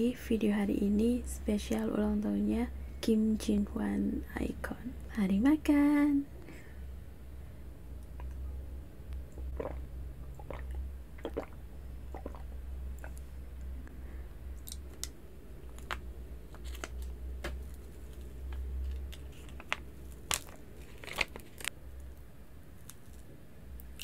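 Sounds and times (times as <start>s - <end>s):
steady low hum: 0.0s - 24.0s
person swallowing milk: 8.0s - 8.5s, 9.2s - 13.3s
plastic film crinkling: 16.5s - 21.7s.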